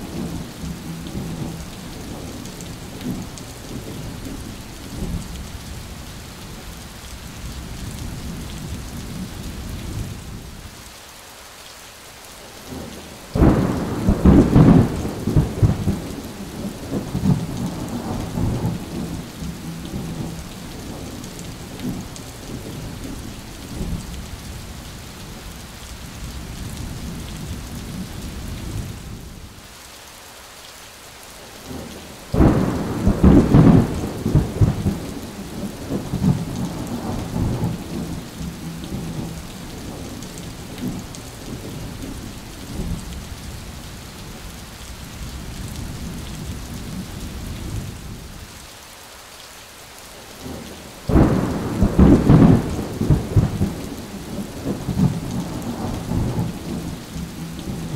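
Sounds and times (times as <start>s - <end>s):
heavy rain falling: 0.0s - 57.9s
thunder cracks and rumble: 12.7s - 24.1s, 32.3s - 43.2s, 50.4s - 57.9s.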